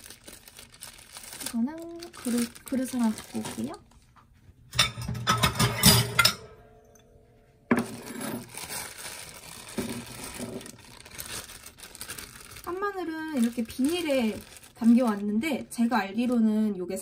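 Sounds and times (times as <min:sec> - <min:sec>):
plastic bag rustling: 0:00.0 - 0:04.2, 0:07.8 - 0:16.4
dishes clinking: 0:04.7 - 0:08.5.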